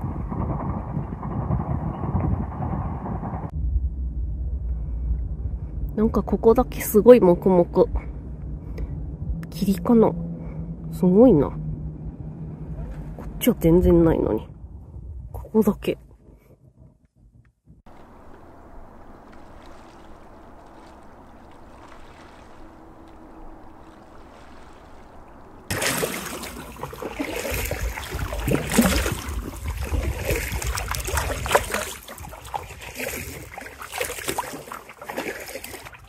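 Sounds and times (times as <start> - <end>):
water lapping and splashing: 17.8 - 36.0
small splashes and drips: 19.0 - 36.0.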